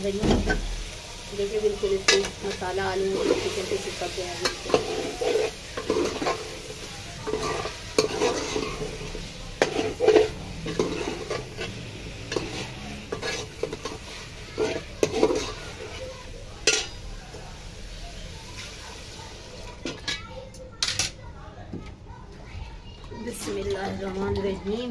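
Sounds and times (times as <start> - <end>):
food sizzling: 0.0 - 24.9
ladle scraping metal pot: 2.0 - 17.0.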